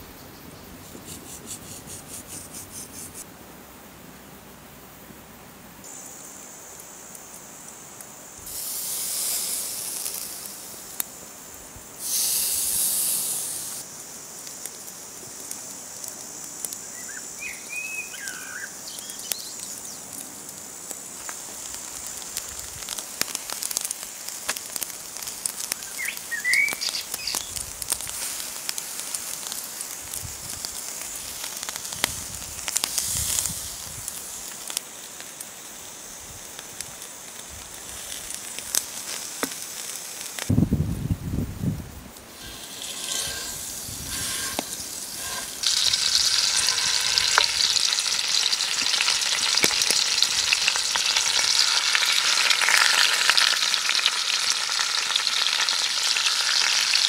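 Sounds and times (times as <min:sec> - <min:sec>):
meat sizzling on a grill: 0:05.8 - 0:57.0
charcoal crackling: 0:05.9 - 0:57.0
loud hissing bursts: 0:07.9 - 0:17.8, 0:20.4 - 0:54.6.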